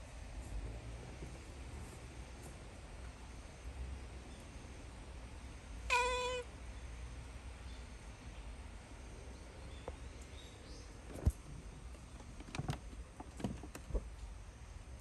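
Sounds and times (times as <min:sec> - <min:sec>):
cat meowing: 0:05.9 - 0:06.5.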